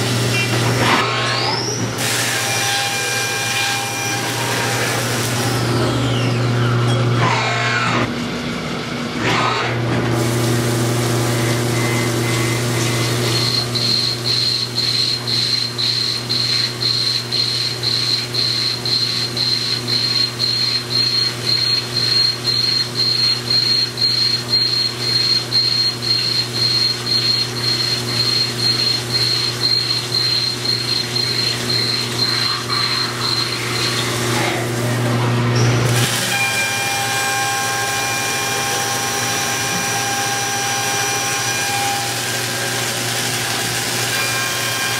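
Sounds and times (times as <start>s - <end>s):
high cutting whine: 0.0s - 44.9s
machine low hum: 0.0s - 44.9s
coolant spray hiss: 10.2s - 13.2s
milling machine spindle spinning up: 10.8s - 44.9s.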